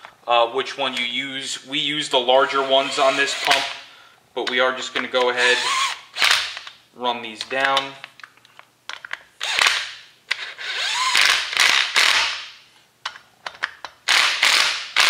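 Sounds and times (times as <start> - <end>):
impact driver rapid clicks: 10.8 - 12.4, 14.1 - 15.0.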